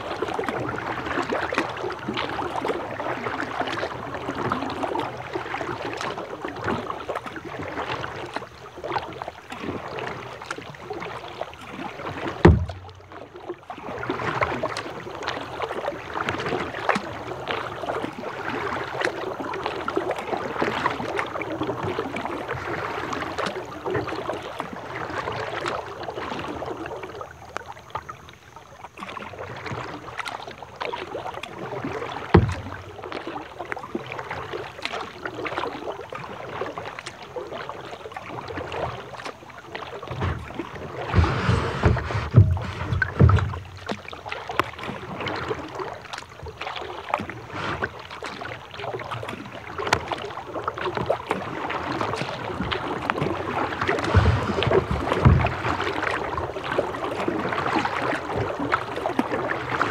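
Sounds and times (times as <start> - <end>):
rain on kayak and water: 0.0 - 59.9
low thumps: 12.4 - 13.2, 32.4 - 32.9, 41.1 - 43.9.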